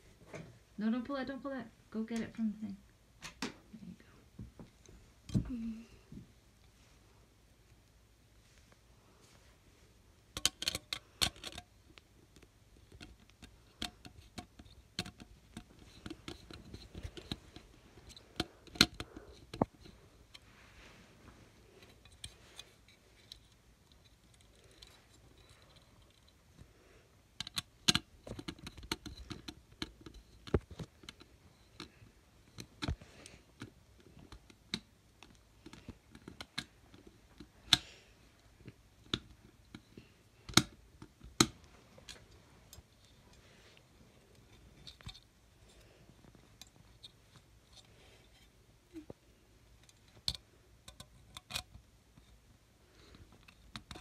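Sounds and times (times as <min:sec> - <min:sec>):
screwdriver clicking and scraping metal: 0:10.4 - 0:11.7, 0:12.8 - 0:20.4.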